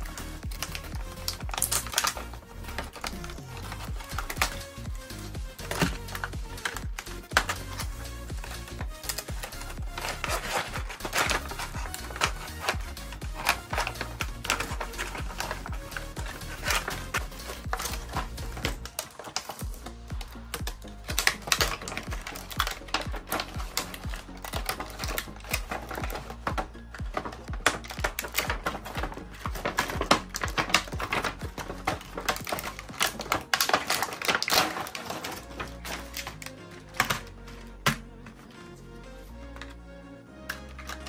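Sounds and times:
plastic packaging crackling: 0.0s - 38.4s
background music with beat: 0.0s - 41.0s.

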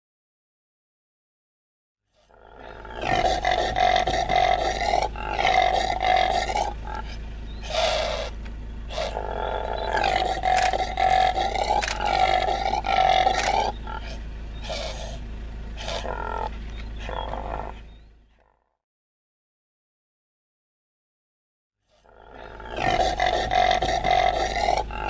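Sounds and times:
impala roaring grunts: 2.2s - 15.2s, 15.8s - 18.6s, 21.9s - 25.0s.

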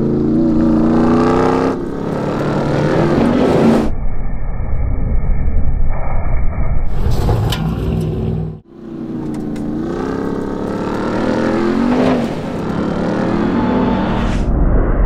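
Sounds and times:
truck engine revving hard: 0.0s - 3.9s, 8.8s - 14.2s.

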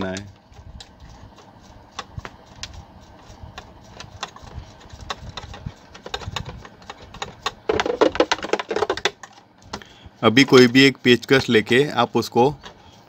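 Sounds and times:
small clicks and taps of metal parts: 3.6s - 7.6s.

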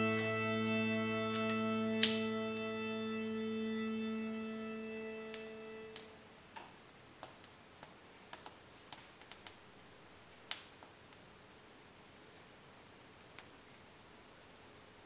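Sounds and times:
light clicks and taps: 6.0s - 9.6s.

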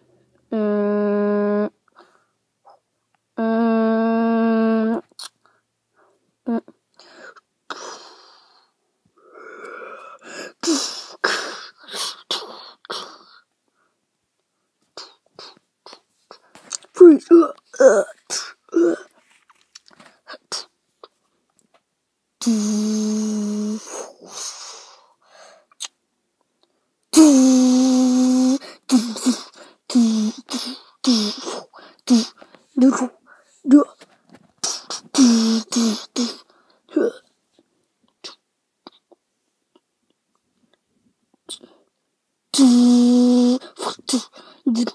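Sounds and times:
person humming buzzing sounds: 0.5s - 1.8s, 22.4s - 23.9s, 27.2s - 32.4s, 42.6s - 44.9s
breathy mouth hissing: 22.4s - 25.5s, 27.2s - 32.5s, 34.6s - 36.6s, 42.6s - 44.9s
sharp mouth bursts: 27.1s - 33.2s, 34.6s - 36.4s, 42.6s - 44.9s.

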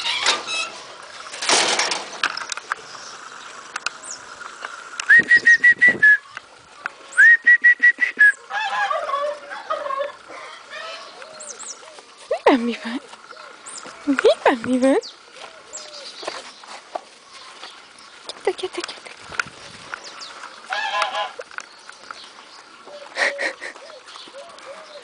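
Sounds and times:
high whistle pips: 5.0s - 6.3s, 7.1s - 8.4s.

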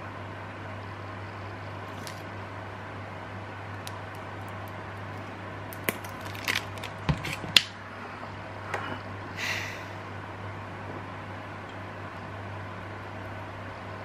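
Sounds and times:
breathy hiss of air: 9.3s - 10.2s.

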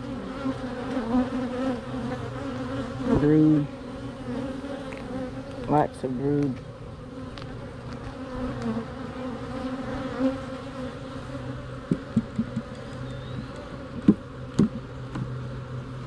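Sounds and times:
bees buzzing: 0.0s - 16.0s
sharp knocks: 11.9s - 12.7s, 14.0s - 15.3s.

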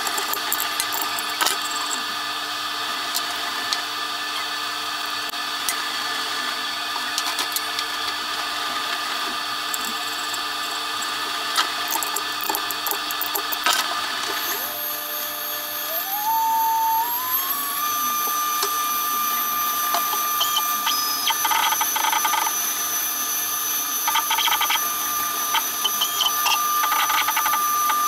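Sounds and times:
machine hum: 0.0s - 28.0s
metallic clicks of wrench: 11.9s - 13.8s.

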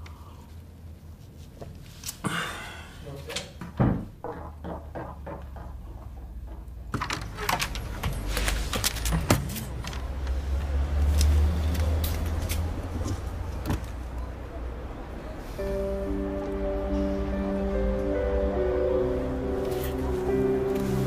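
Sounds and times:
vehicle low rumble: 7.6s - 21.0s.

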